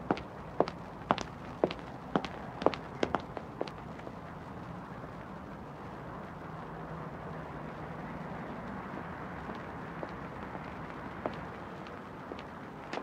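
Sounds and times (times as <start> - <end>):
footsteps on hard ground: 0.1 - 3.8.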